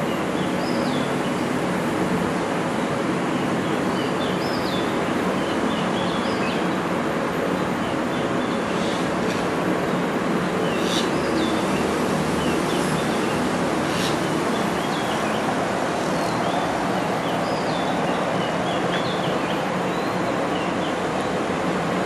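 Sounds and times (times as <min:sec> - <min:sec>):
distant traffic hum: 0:00.0 - 0:22.0
small birds chirping: 0:07.5 - 0:09.4, 0:10.5 - 0:21.2.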